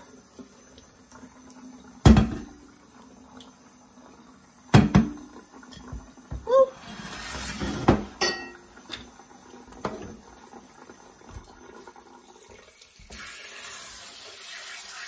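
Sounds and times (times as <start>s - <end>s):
metal cookware clanking: 7.1s - 9.2s.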